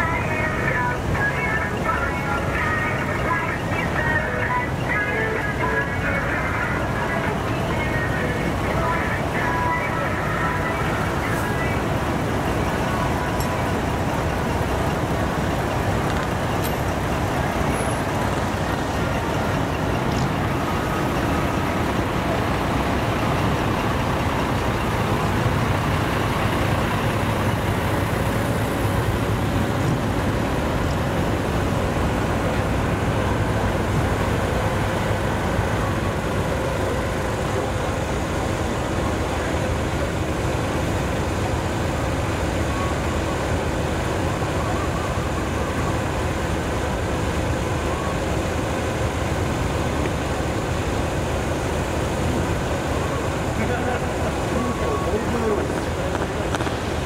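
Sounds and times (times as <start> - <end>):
diesel engines idling: 0.0 - 57.0.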